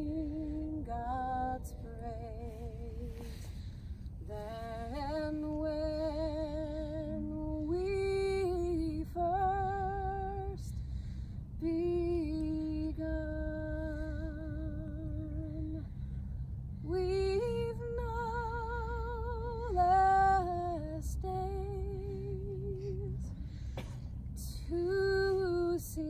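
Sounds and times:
woman singing unaccompanied: 0:00.0 - 0:03.4, 0:04.2 - 0:10.8, 0:11.6 - 0:15.9, 0:16.8 - 0:23.3, 0:24.4 - 0:26.0.

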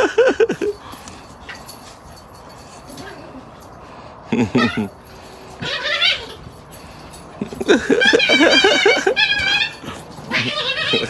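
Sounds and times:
dog whimpering and whining: 0:05.6 - 0:06.5, 0:07.9 - 0:11.0.

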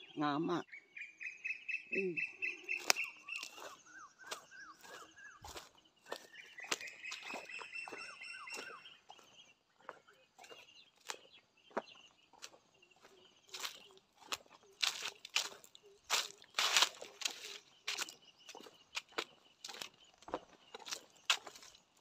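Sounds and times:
footsteps on dry leaves: 0:02.6 - 0:09.3, 0:12.3 - 0:22.0.

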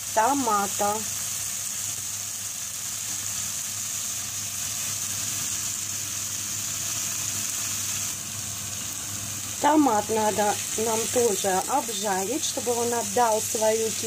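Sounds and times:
onion and tomato sizzling in oil: 0:00.0 - 0:14.0.

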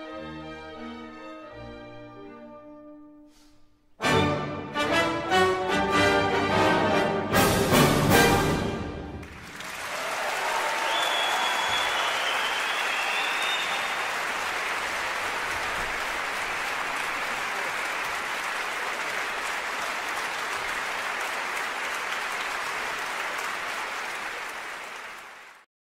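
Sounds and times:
audience applause: 0:08.8 - 0:25.7.

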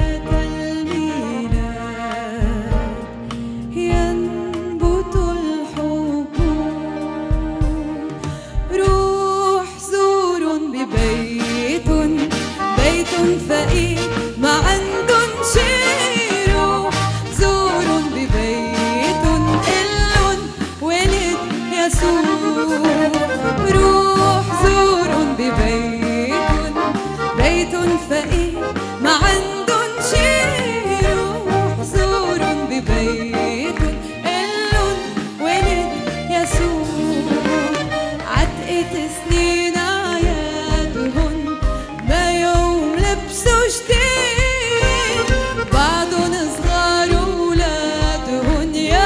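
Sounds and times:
steady kick-drum beat: 0:00.0 - 0:05.5, 0:11.0 - 0:49.0
accordion: 0:00.0 - 0:09.0, 0:09.6 - 0:49.0
woman singing into microphone: 0:00.0 - 0:49.0
low beat: 0:15.6 - 0:20.6, 0:44.6 - 0:48.6.

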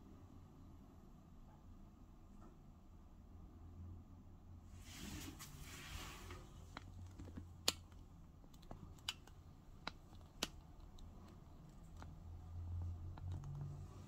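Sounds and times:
faint sharp clicks and ticks: 0:06.7 - 0:14.0.

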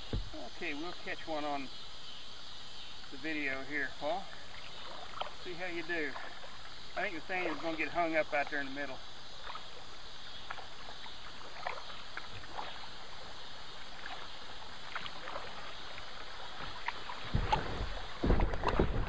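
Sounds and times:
moving river water: 0:00.0 - 0:19.0
paddle splashes and drips: 0:00.0 - 0:19.0.

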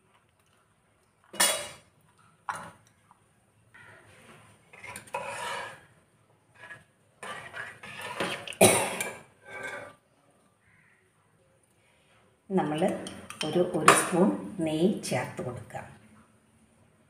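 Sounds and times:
ladle scraping a metal pot: 0:04.3 - 0:05.9, 0:06.5 - 0:10.0.

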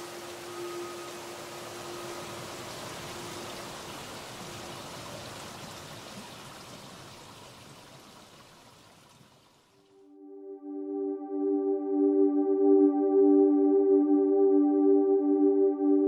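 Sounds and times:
running water rushing: 0:00.0 - 0:09.9.

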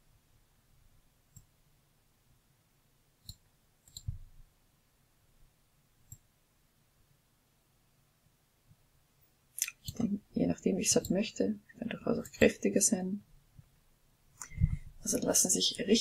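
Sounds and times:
computer mouse clicks: 0:01.3 - 0:01.5, 0:03.2 - 0:04.3, 0:06.0 - 0:06.3.

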